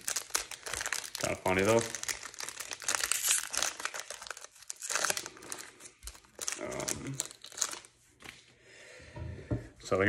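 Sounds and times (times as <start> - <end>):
foil wrapper tearing and crinkling: 0.0 - 7.9.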